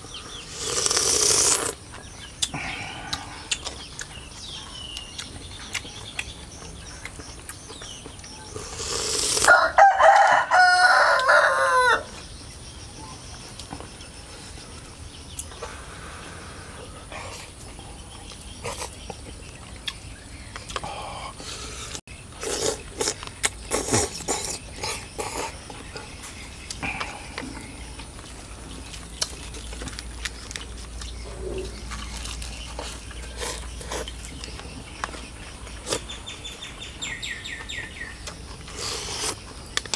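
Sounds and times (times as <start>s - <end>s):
rooster crowing: 9.4s - 12.1s.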